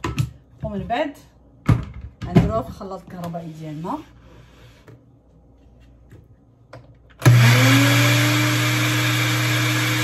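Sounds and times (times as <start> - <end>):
blender motor whining: 7.2 - 10.0.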